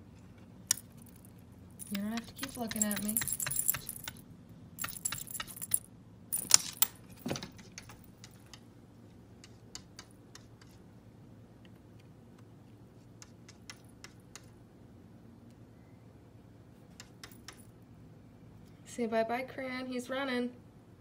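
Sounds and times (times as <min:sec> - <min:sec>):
cat collar tags jingling: 0:01.0 - 0:04.2, 0:04.8 - 0:07.2.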